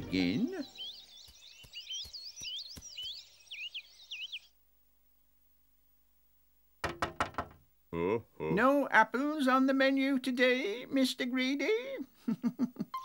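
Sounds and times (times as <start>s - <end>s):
cartoon birds chirping: 0.0s - 4.6s.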